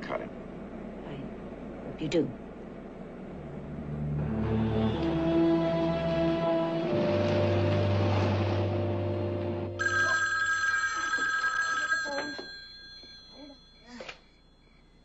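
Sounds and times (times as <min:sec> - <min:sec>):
dramatic background music: 0:03.6 - 0:09.8
telephone bell ringing: 0:09.8 - 0:15.0.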